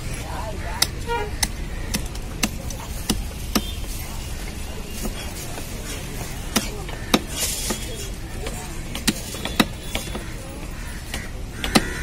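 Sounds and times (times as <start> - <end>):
cleaver chopping on wooden block: 0.8 - 3.8, 5.0 - 7.9, 8.9 - 10.3, 11.1 - 12.0.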